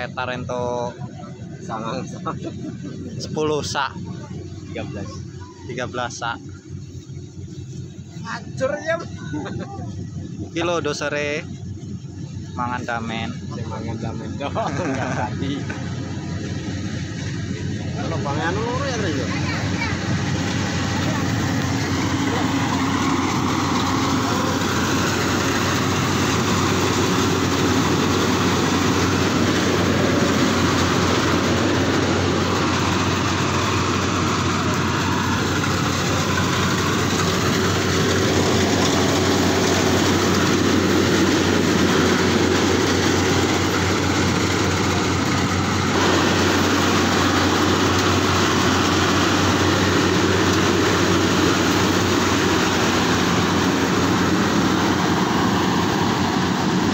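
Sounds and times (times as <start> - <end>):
combine harvester drone: 0.0 - 56.9.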